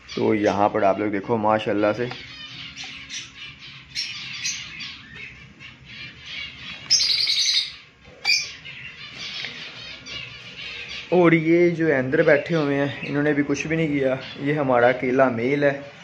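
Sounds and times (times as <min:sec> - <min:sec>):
birds chirping and chattering: 0:00.0 - 0:16.0
bird squawk: 0:02.2 - 0:11.2.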